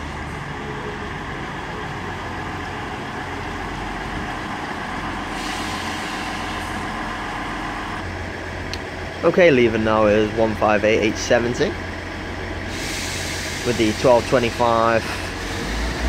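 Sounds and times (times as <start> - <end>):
diesel train engine rumble: 0.0 - 16.0
hiss: 5.3 - 6.8, 12.7 - 16.0.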